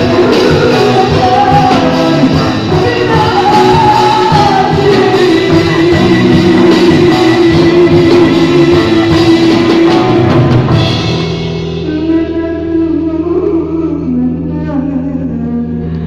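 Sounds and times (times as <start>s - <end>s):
drum kit and cymbals: 0.0s - 12.3s
live rock band playing: 0.0s - 14.2s.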